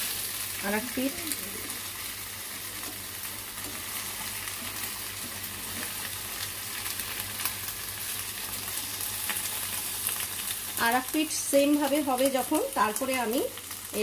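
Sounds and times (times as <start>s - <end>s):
oil sizzling in a pan: 0.0s - 14.0s.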